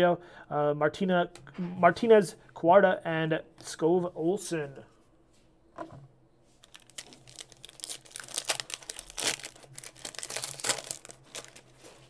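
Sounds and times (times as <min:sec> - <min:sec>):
foil wrapper crinkling and tearing: 0:06.6 - 0:12.0.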